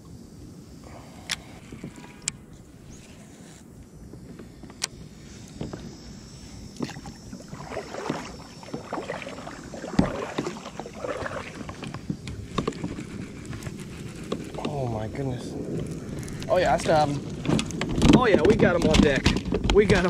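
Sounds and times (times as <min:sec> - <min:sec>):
kayak paddle splashing water: 0:06.6 - 0:14.4.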